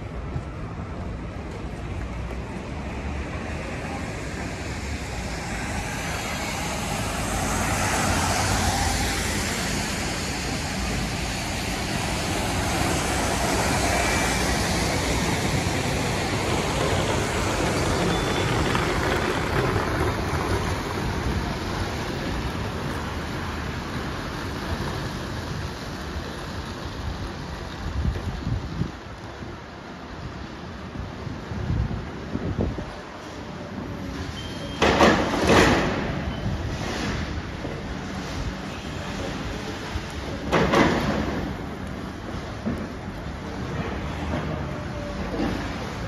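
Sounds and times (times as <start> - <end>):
bus passing close: 0.0 - 46.0
vehicles passing with tyre hiss: 0.0 - 46.0.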